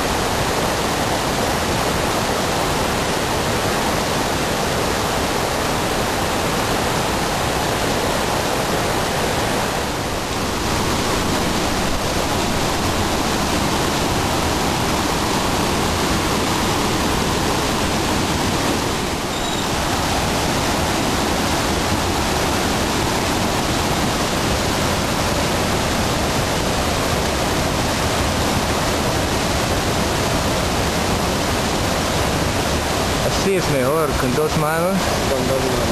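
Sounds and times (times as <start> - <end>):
river rapids rushing: 0.0 - 35.9.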